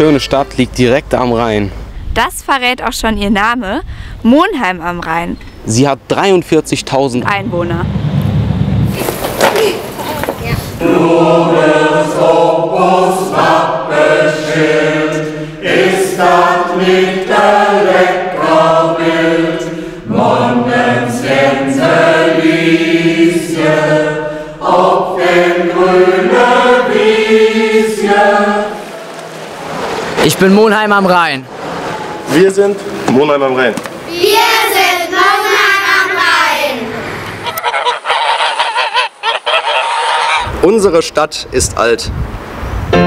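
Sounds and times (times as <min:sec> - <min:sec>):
choir singing held notes: 0:10.7 - 0:30.2, 0:34.0 - 0:38.7.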